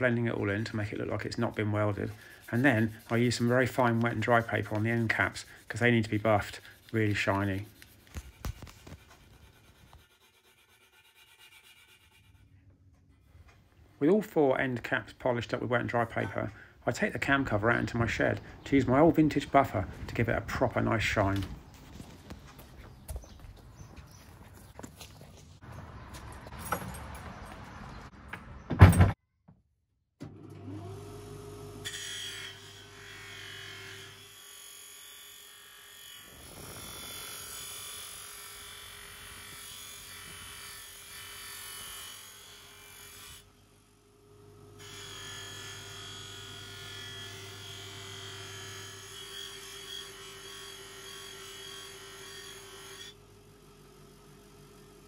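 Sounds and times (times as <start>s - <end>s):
metal rubbing on polishing wheel: 0.0s - 12.6s
electric motor whining and humming: 36.2s - 40.5s.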